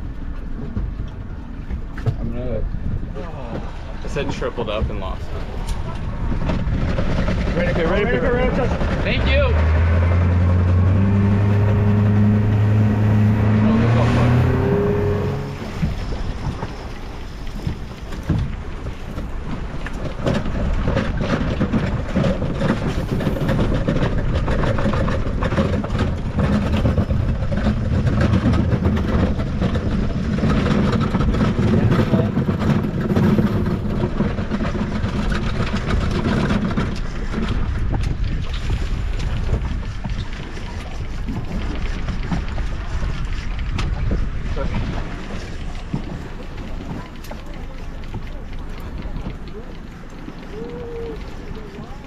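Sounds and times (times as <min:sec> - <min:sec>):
wind rushing across microphone: 0:00.0 - 0:47.6
water around boat: 0:00.0 - 0:52.0.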